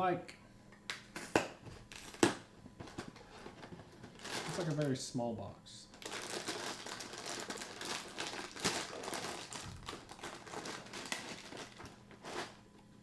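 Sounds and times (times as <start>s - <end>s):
plastic bag crinkling: 4.1s - 5.0s, 5.9s - 12.6s.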